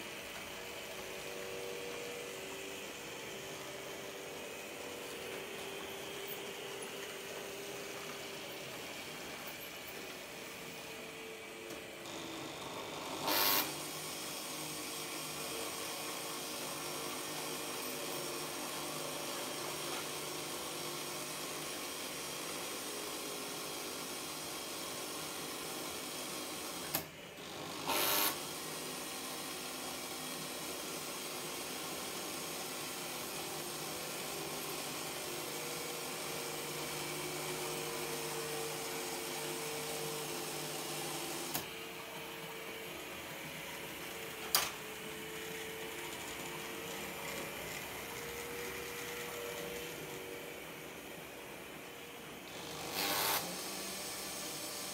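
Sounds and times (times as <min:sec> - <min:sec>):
model locomotive running on track: 0:28.0 - 0:52.4.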